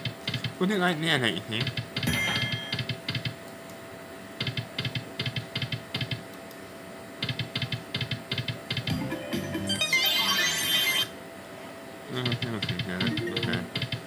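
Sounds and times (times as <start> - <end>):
faint steady hum: 0.0 - 14.0
slot machine reels ticking: 13.0 - 14.0.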